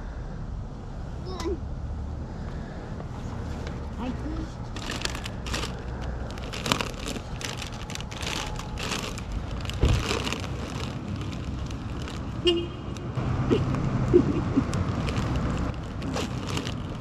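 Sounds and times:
plastic bag crinkling: 4.7s - 13.8s, 14.5s - 17.0s
low rumble: 4.8s - 12.4s
thump: 9.8s - 10.1s.

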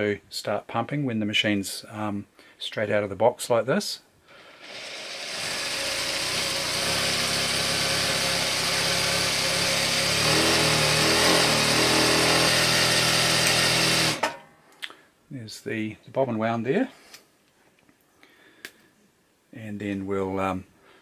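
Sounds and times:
sewing machine running: 4.6s - 14.3s.

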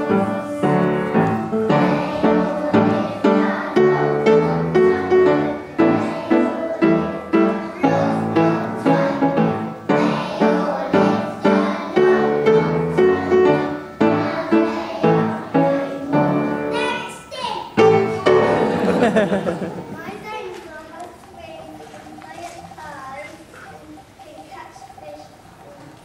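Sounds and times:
piano music with steady beat: 0.0s - 17.0s, 17.8s - 20.0s.

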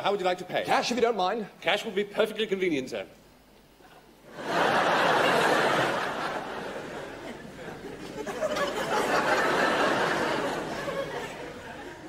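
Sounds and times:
studio audience laughter: 4.3s - 12.0s.

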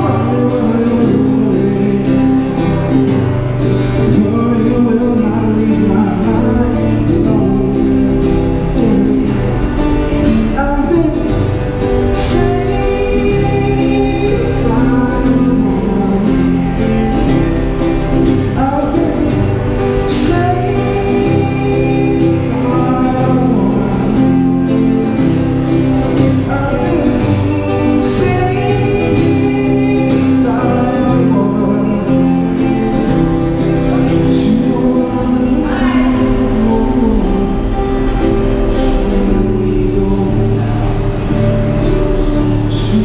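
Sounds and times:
acoustic guitar: 0.0s - 43.0s
man singing: 0.0s - 43.0s.

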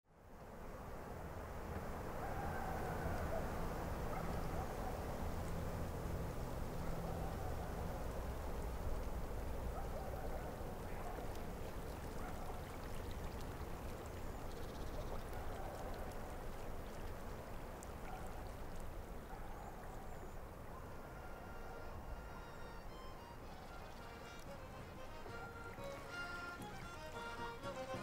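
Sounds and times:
water flowing: 0.8s - 28.0s
water dripping: 3.0s - 20.9s.

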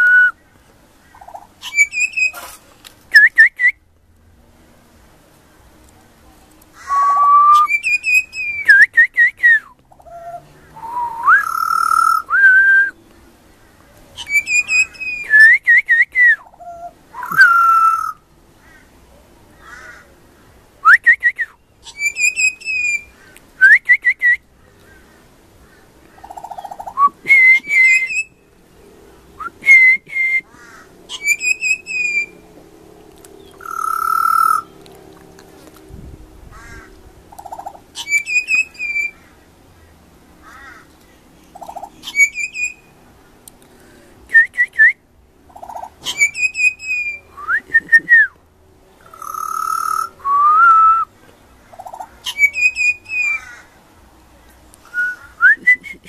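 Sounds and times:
bird singing fluty whistles: 1.6s - 2.4s, 3.1s - 3.8s, 6.9s - 9.7s, 10.8s - 13.0s, 14.2s - 16.5s, 17.1s - 18.2s, 20.8s - 24.4s, 26.8s - 28.4s, 31.1s - 32.4s, 38.0s - 39.2s, 42.0s - 42.8s, 46.1s - 48.3s, 49.1s - 51.1s, 52.3s - 53.4s, 54.9s - 56.0s.

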